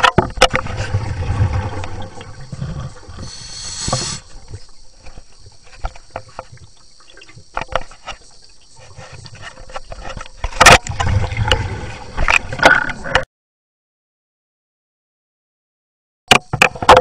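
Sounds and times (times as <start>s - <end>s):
underwater knocks and clicks: 0.0s - 13.2s, 16.3s - 17.0s
underwater rumble of moving water: 0.2s - 13.2s
brief hiss: 3.2s - 4.4s.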